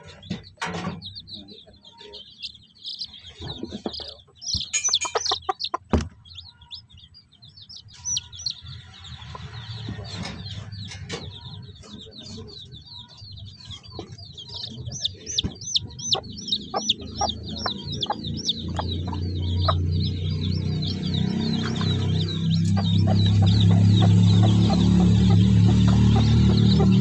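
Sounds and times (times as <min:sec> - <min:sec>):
chicks peeping: 0:00.0 - 0:27.0
hen clucking: 0:00.0 - 0:27.0.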